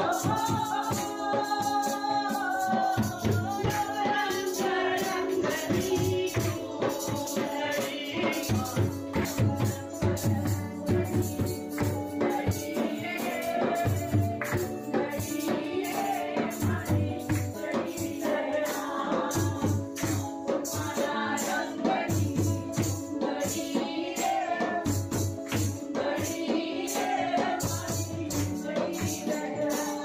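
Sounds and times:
person singing: 0.0s - 20.0s
jingling tambourine: 0.0s - 30.0s
steady drum beat: 0.0s - 30.0s.

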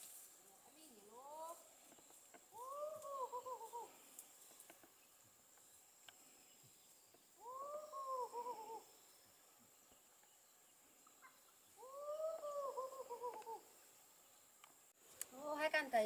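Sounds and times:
animal call: 2.5s - 4.1s, 7.4s - 9.0s, 11.1s - 13.7s.

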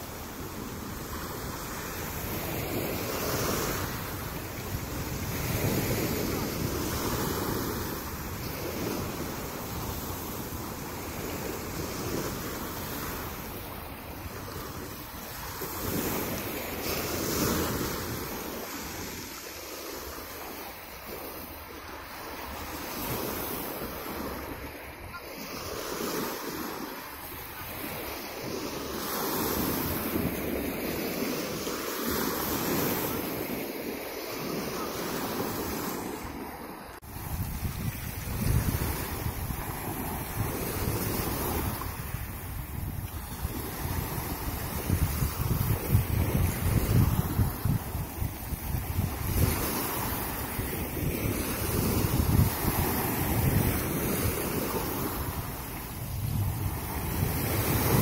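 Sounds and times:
wind buffeting microphone: 0.0s - 19.4s, 35.3s - 58.0s
waves breaking on pebble beach: 0.0s - 58.0s.

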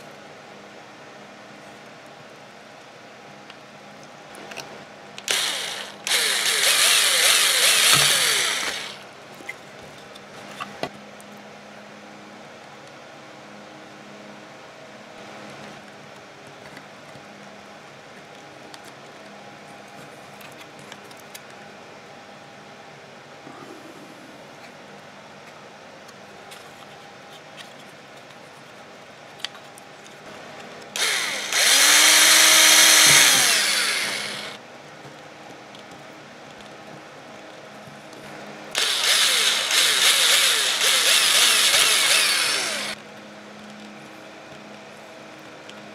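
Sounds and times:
cordless drill drilling plastic: 5.3s - 9.0s, 31.0s - 34.6s, 38.8s - 43.0s.

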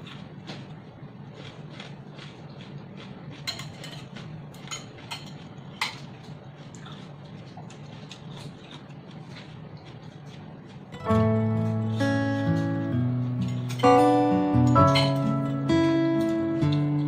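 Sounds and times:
metal chopsticks clinking on glass: 14.7s - 15.2s.

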